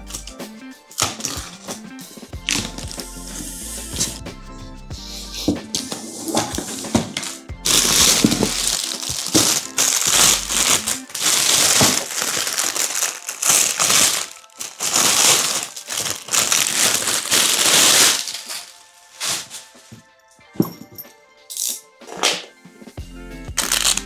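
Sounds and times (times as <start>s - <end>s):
plastic wrapping crinkling: 2.5s - 3.0s, 5.8s - 20.0s, 23.6s - 24.0s.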